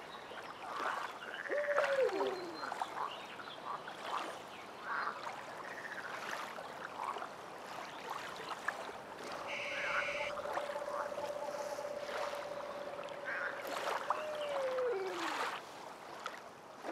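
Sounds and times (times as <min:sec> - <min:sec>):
small splashes and knocks: 0:00.0 - 0:03.2, 0:03.8 - 0:16.9
water lapping and trickling: 0:00.0 - 0:16.9
long steady tone: 0:09.2 - 0:15.6.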